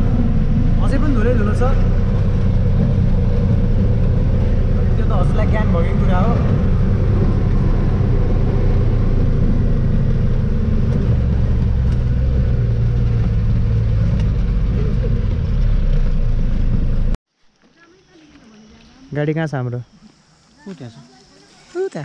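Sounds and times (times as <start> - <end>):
truck engine running: 0.0 - 17.2
low road rumble: 0.0 - 22.0.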